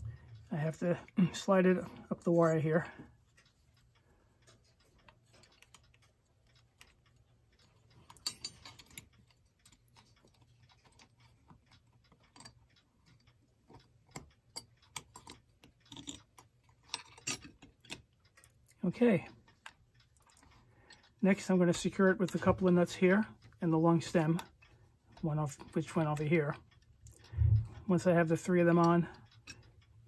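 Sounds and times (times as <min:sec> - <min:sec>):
metal clock parts clicking: 0:00.0 - 0:30.0
faint low hum: 0:27.2 - 0:28.0.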